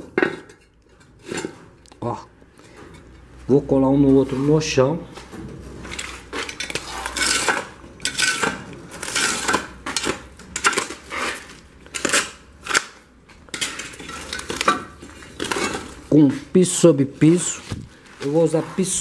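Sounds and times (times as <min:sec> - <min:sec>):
ceramic blocks clinking and scraping: 0:00.0 - 0:01.6, 0:05.9 - 0:12.8, 0:13.5 - 0:16.1.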